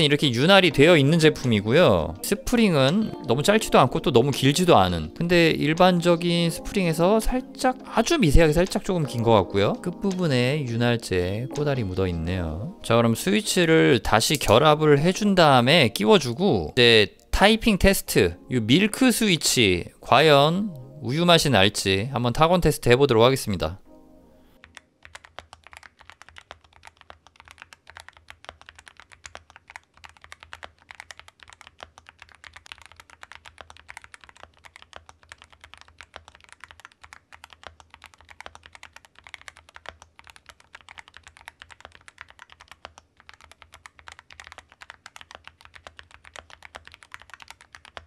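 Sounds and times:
mechanical keyboard typing clicks: 0:08.0 - 0:14.8, 0:24.6 - 0:48.0.

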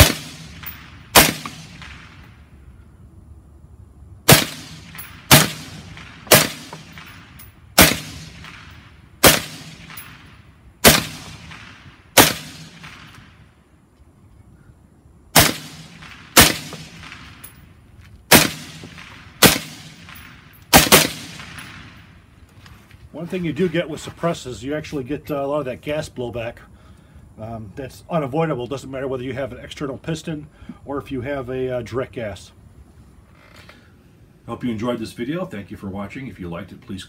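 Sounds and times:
suppressed rifle shots: 0:00.0 - 0:02.3, 0:04.3 - 0:13.4, 0:15.3 - 0:17.6, 0:18.3 - 0:22.1.

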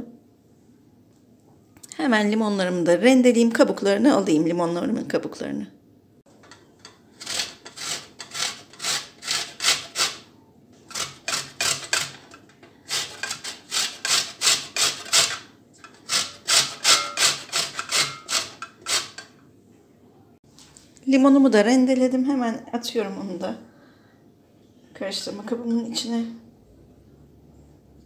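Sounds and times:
rind grated on metal grater: 0:06.3 - 0:19.4.

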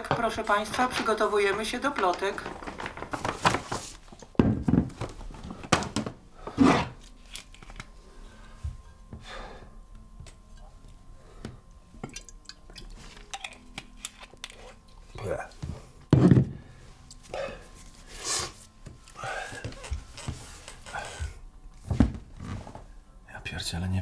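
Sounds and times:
faint room hum: 0:00.0 - 0:24.0.

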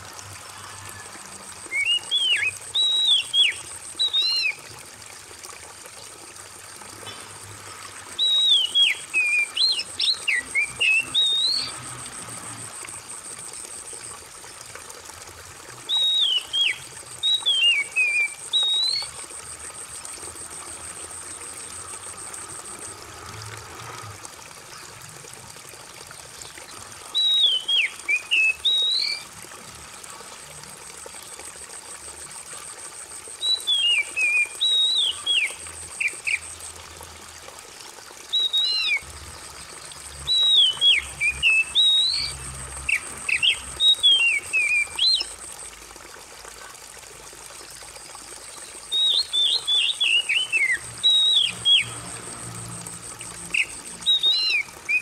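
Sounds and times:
trickle of running water: 0:00.0 - 0:55.0
bird singing whistled phrases: 0:01.7 - 0:04.6, 0:08.2 - 0:11.8, 0:15.9 - 0:19.1, 0:27.2 - 0:29.2, 0:33.4 - 0:36.4, 0:38.3 - 0:39.0, 0:40.2 - 0:45.3, 0:48.9 - 0:51.9, 0:53.6 - 0:55.0.

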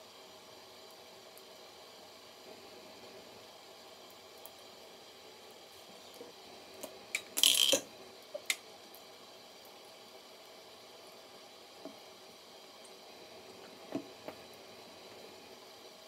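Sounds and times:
faucet stream running: 0:05.9 - 0:09.0.

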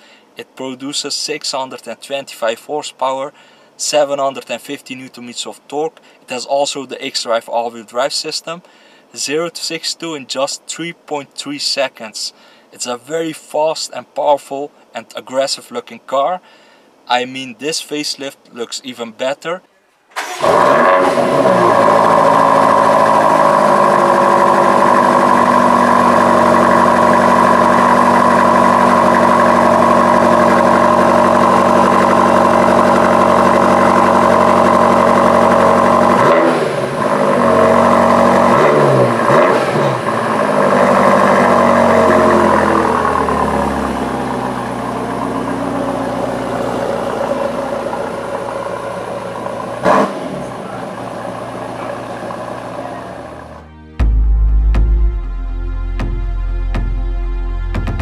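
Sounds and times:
car engine idling and revving: 0:20.2 - 0:54.3.

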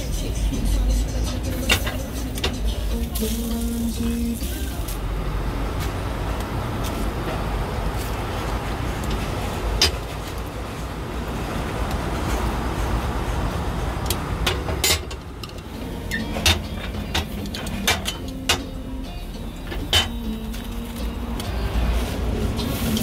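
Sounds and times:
steady background rumble: 0:00.0 - 0:23.0
cast-iron molds clanking: 0:09.0 - 0:10.3, 0:14.4 - 0:18.8, 0:19.6 - 0:20.6.

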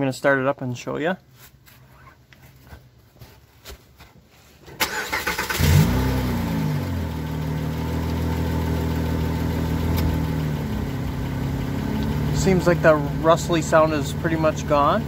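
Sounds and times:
car engine starting and idling: 0:04.7 - 0:15.0.

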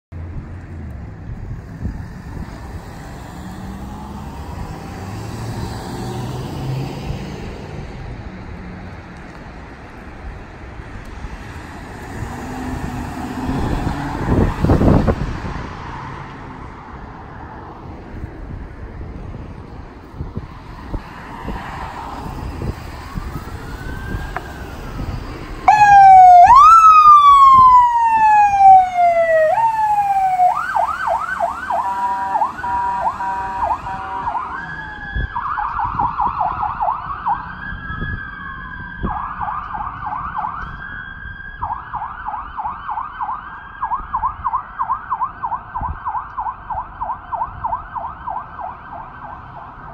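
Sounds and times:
ambulance siren: 0:22.2 - 0:49.9.

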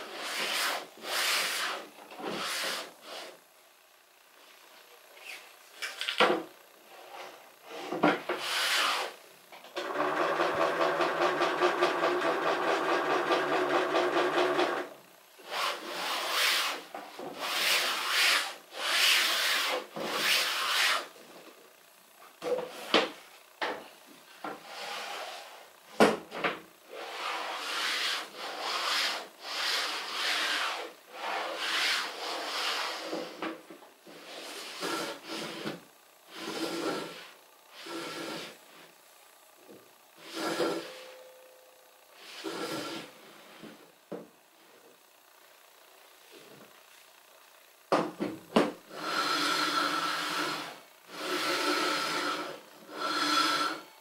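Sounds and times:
wooden sled rubbing on saw table: 0:00.1 - 0:03.3, 0:15.5 - 0:21.1, 0:24.6 - 0:25.6, 0:34.1 - 0:38.6, 0:40.2 - 0:41.2, 0:42.2 - 0:43.1, 0:49.0 - 0:53.9.

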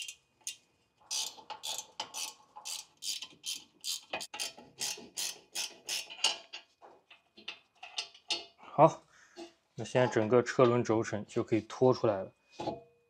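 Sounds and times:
spanner ratcheting clicks: 0:00.0 - 0:06.3.

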